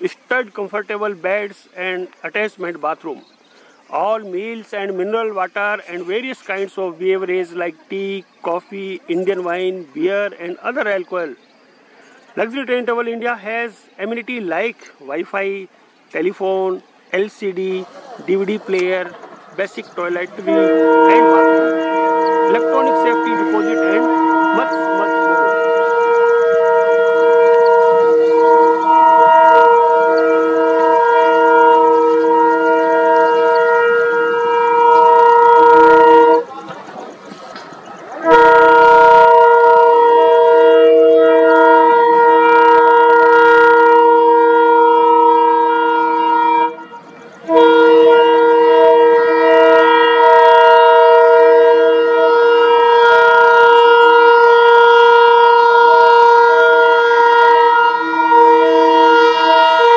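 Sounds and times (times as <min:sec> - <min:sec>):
locomotive horn blasts: 0:19.6 - 0:36.8, 0:38.1 - 0:59.9.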